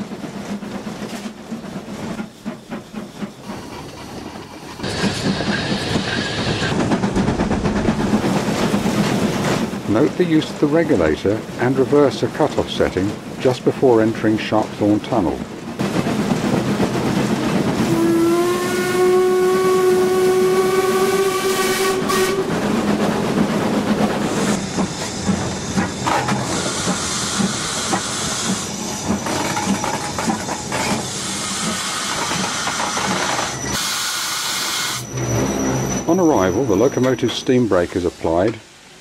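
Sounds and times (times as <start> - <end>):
train running and rail noise: 0.0 - 39.0
steam whistle: 17.9 - 22.5
high steam hiss: 23.9 - 29.8, 30.6 - 39.0.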